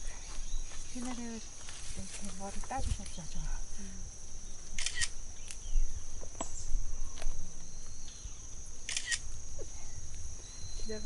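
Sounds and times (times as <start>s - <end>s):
high insect drone: 0.0s - 11.0s
grass rustling in hands: 0.7s - 3.3s.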